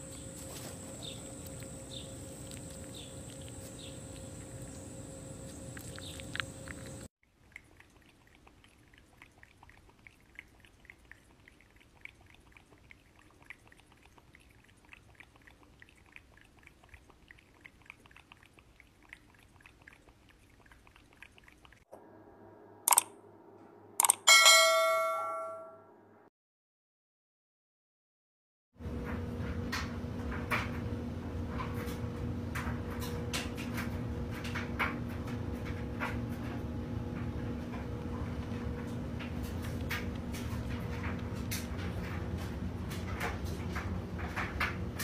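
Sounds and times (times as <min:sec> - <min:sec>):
cat licking plastic bottle: 0:05.7 - 0:21.8
sharp clicks sound effect: 0:22.9 - 0:23.2, 0:24.0 - 0:25.1
ringing bell chime: 0:24.3 - 0:25.9.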